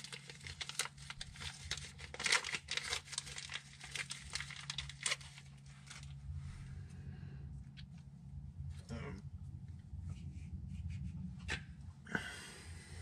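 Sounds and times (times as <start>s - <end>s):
packaging crinkling and rustling: 0.0s - 6.2s
steady low hum: 0.0s - 13.0s.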